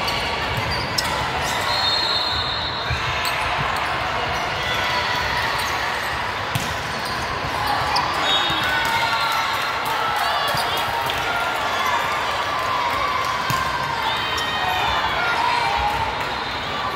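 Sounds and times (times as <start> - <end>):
spectators' voices: 0.0 - 16.9
volleyball hits: 6.2 - 9.2, 13.4 - 13.8.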